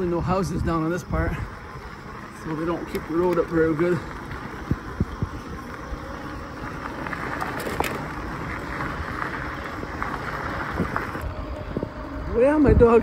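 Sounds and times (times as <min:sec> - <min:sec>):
bike tyres rolling on rough road: 0:00.0 - 0:13.0.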